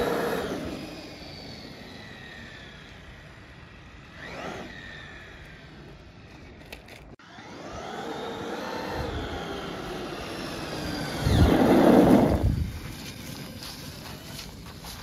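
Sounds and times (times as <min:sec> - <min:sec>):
electric motor whining: 0:00.0 - 0:03.4, 0:07.2 - 0:14.4
tyre noise on asphalt: 0:09.0 - 0:15.0.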